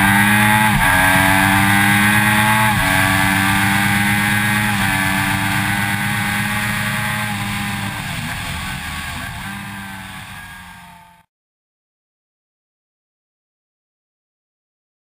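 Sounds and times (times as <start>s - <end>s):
wind and tyre noise: 0.0s - 10.8s
motorcycle engine at high revs: 0.0s - 11.3s.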